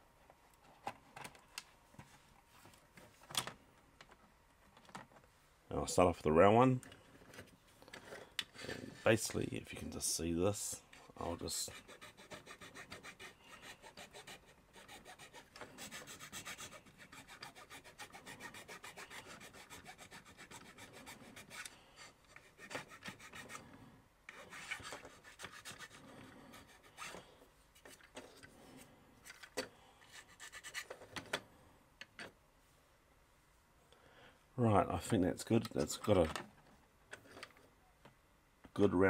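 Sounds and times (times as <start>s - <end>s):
file rasping on plastic: 11.6s - 23.7s, 24.3s - 27.2s, 30.1s - 30.9s.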